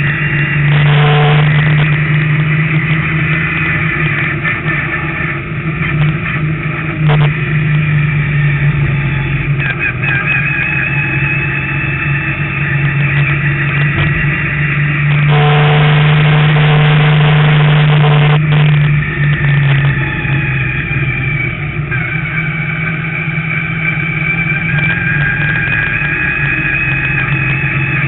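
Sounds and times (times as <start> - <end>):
race car engine: 0.0 - 28.0.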